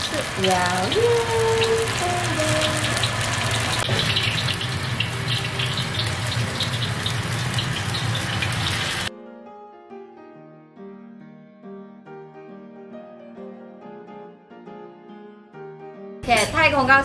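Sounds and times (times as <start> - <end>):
fritter sizzling in hot oil: 0.0 - 9.1
soft piano music: 0.0 - 17.0.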